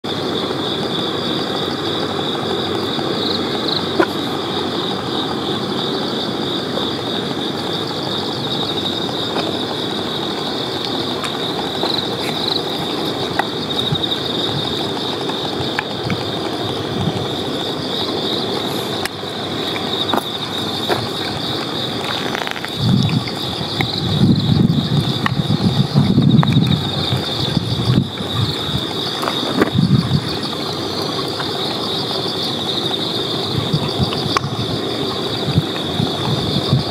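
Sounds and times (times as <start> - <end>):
high-pitched insect chorus: 0.0 - 36.9.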